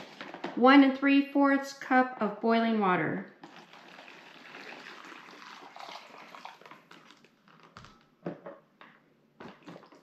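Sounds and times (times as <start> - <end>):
water pouring into pouch: 3.4 - 7.7
foil pouch crinkling: 6.2 - 8.1.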